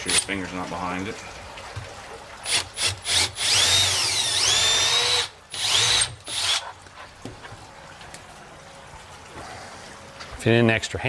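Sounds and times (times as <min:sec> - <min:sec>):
cordless drill motor: 0:02.5 - 0:06.7.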